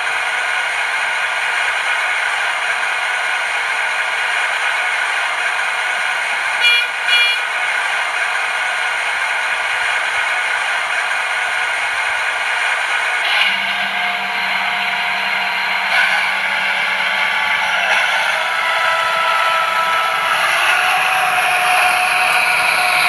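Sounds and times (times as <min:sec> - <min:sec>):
diesel railcar engine idling: 0:00.0 - 0:23.0
short horn toots: 0:06.6 - 0:07.4.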